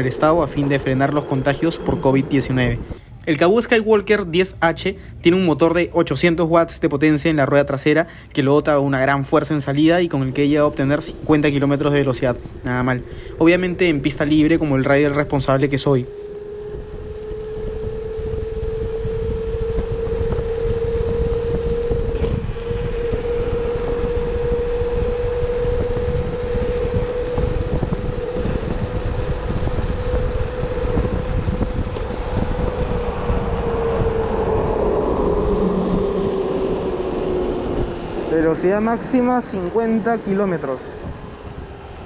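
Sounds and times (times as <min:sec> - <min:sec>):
electric scooter motor whining: 0:00.0 - 0:03.2, 0:09.7 - 0:42.0
road rumble: 0:00.0 - 0:42.0
wind buffeting microphone: 0:00.0 - 0:42.0.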